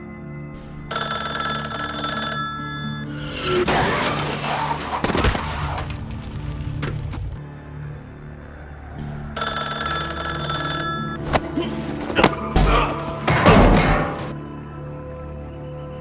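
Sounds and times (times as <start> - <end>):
film score with held tones: 0.0 - 16.0
car crashing and shattering: 3.2 - 7.4, 12.0 - 14.4.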